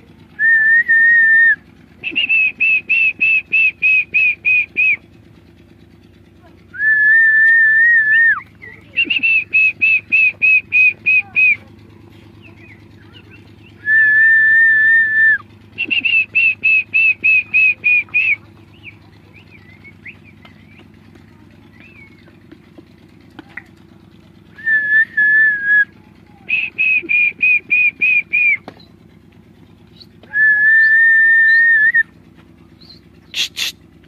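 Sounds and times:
loud whistled call: 0.4s - 5.0s, 6.7s - 11.6s, 12.4s - 20.9s, 24.5s - 28.9s, 29.9s - 32.2s, 32.8s - 33.8s.

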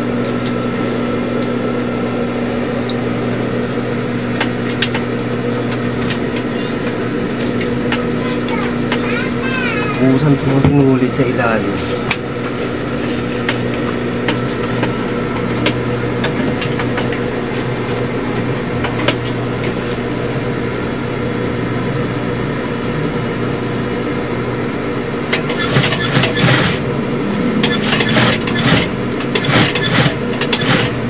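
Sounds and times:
sewing machine motor humming: 25.3s - 31.0s.

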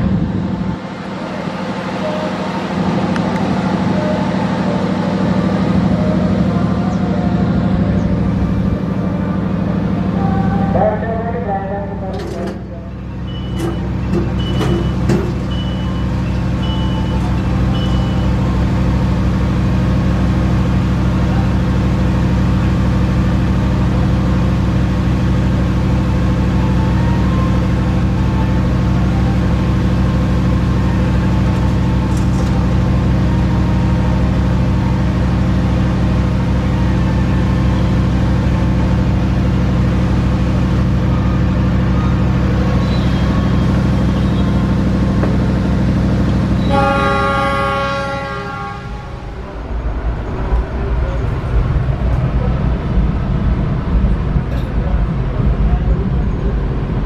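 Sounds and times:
train engine drone and rumble: 0.0s - 57.0s
short high beep: 13.2s - 18.4s.

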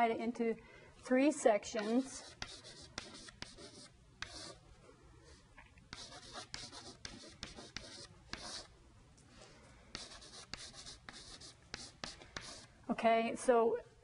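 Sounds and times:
chalk writing on chalkboard: 1.7s - 4.6s, 5.9s - 8.7s, 9.9s - 12.7s.

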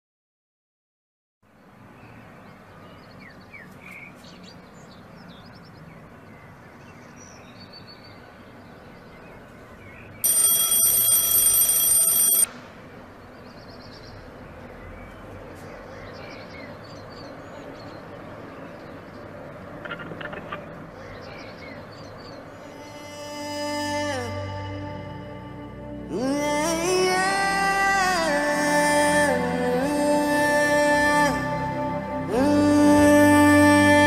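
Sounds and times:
electronic alarm ringing: 10.2s - 12.5s
faint short chirps: 10.2s - 12.5s.

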